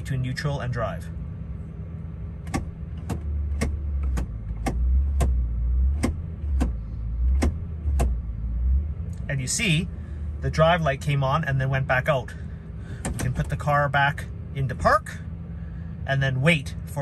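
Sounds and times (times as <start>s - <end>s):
engine idling: 0.0s - 17.0s
gear shift lever clicking: 2.4s - 8.2s, 13.0s - 13.6s.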